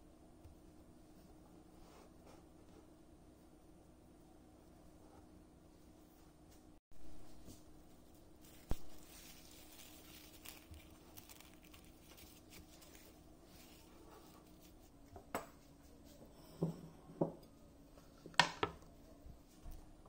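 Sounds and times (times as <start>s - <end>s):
cling film crinkling: 8.4s - 14.9s.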